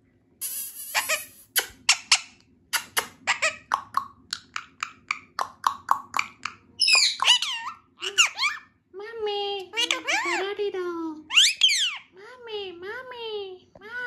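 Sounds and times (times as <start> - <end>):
parrot clicking: 2.8 - 7.5
parrot whistled calls: 6.8 - 8.6, 11.3 - 12.1.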